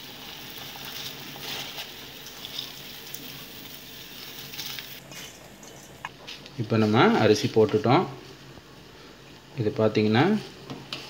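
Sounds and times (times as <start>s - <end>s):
rice pattering into water: 0.0s - 5.0s
water boiling in a pot: 0.0s - 5.0s.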